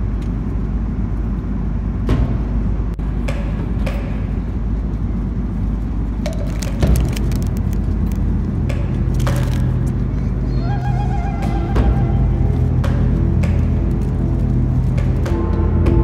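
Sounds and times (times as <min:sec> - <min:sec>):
airliner cabin drone: 0:00.0 - 0:16.0
foil wrapper crinkling: 0:06.3 - 0:08.5, 0:09.1 - 0:09.8.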